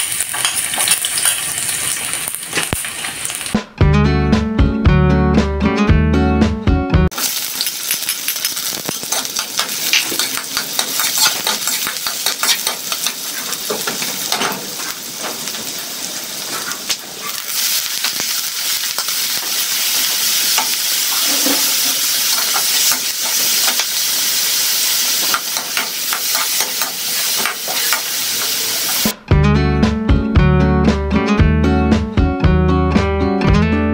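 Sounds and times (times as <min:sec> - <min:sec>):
food sizzling in hot oil: 0:00.0 - 0:03.6, 0:07.1 - 0:29.2
metal spatula scraping wok: 0:00.1 - 0:03.5, 0:07.6 - 0:19.7, 0:20.4 - 0:24.0, 0:25.2 - 0:29.0.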